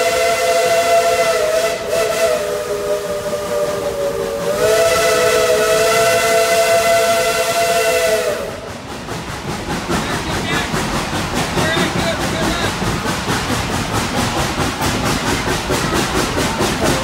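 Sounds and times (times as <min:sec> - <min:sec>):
steam locomotive whistle blast: 0:00.0 - 0:08.6.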